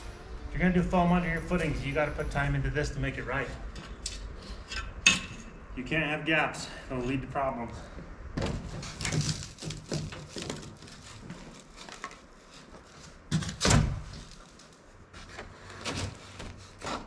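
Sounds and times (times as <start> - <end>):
scraping and knocking on gravel: 8.6 - 15.4.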